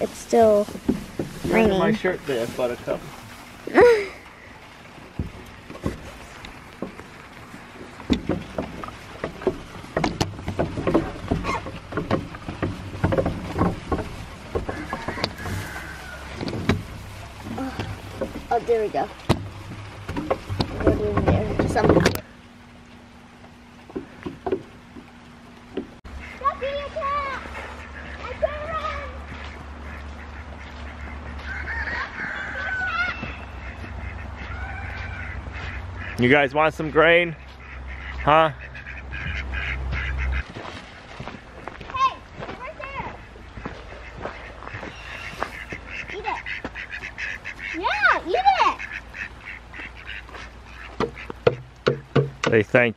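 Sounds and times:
dry hay rustling: 0.0 - 24.2, 24.8 - 51.5
goats eating hay: 0.0 - 36.3, 36.9 - 51.5
low steady rumble: 0.0 - 52.8
geese honking: 6.1 - 22.4, 26.0 - 51.8
knocks and clatters on wooden feeder: 8.1 - 16.9, 19.3 - 22.2, 51.0 - 52.7.

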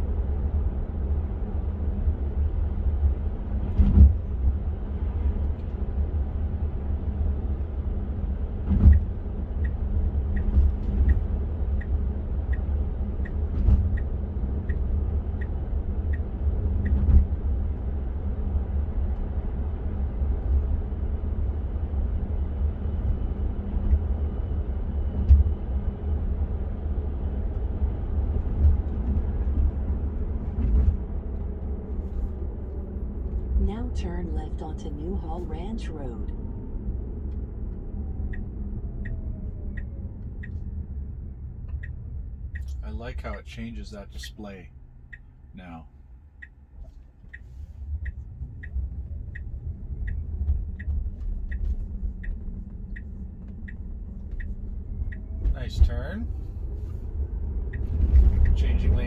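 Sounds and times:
road and tyre rumble: 0.0 - 59.0
turn signal ticking: 8.8 - 18.1, 27.4 - 59.0.

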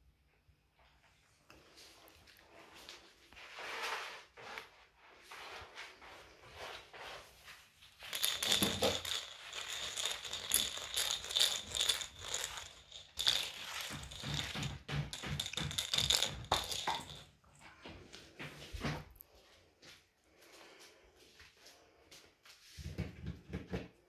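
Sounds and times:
rattling with jingling ring: 8.0 - 17.3.

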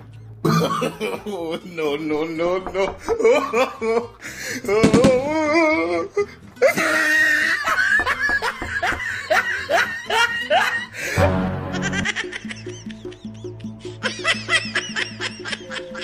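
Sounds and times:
background music: 0.0 - 16.0
wavering pitched laugh: 3.0 - 4.2, 5.3 - 16.0
bursts of laughter: 6.6 - 16.0.

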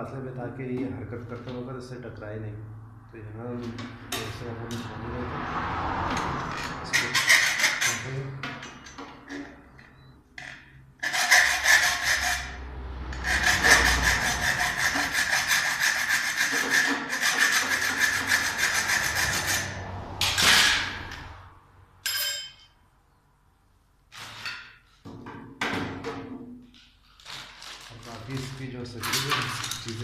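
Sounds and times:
hacksaw cutting metal rod: 6.6 - 9.6, 10.4 - 21.2
metallic clink: 22.0 - 22.8.

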